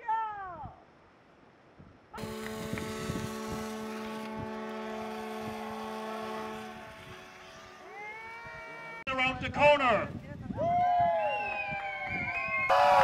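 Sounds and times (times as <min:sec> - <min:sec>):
horns blasting together: 0:02.2 - 0:09.0, 0:12.7 - 0:13.0.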